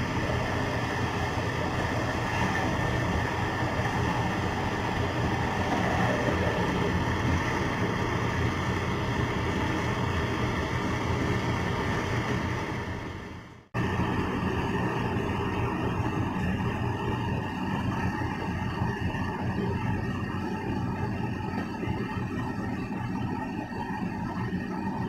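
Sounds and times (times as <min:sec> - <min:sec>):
electric blender running: 0:00.0 - 0:13.2.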